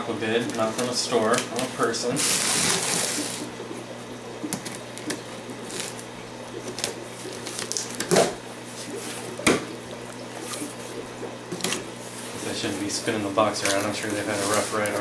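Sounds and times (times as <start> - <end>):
cardboard scraping and rustling: 12.2 - 15.0.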